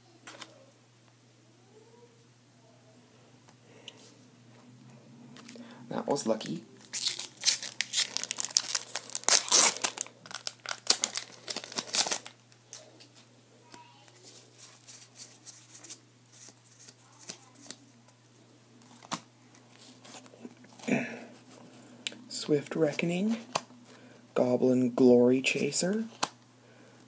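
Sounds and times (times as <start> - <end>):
cards being handled: 6.4 - 13.2, 14.0 - 17.8
foil wrapper tearing and crinkling: 6.8 - 12.5.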